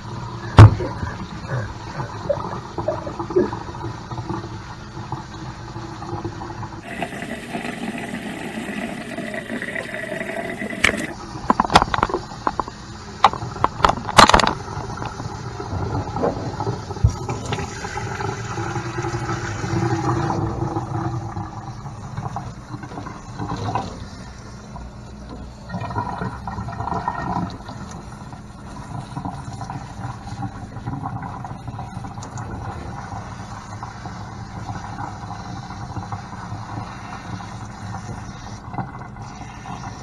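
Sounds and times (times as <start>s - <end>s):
tap water splashing into a sink: 10.6s - 15.2s.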